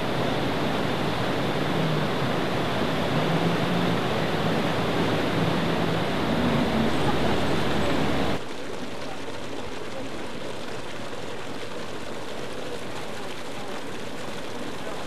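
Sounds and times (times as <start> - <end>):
jet ski engine running: 0.0 - 8.4
hiss of churned water: 0.0 - 15.0
rushing white water: 0.0 - 15.0.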